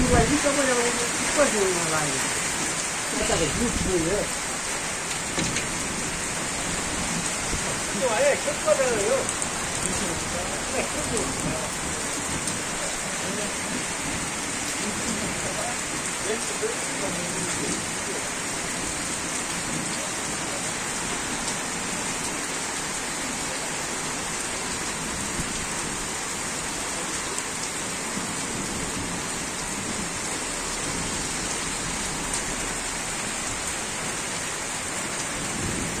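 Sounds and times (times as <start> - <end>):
heavy rain on pavement: 0.0 - 36.0.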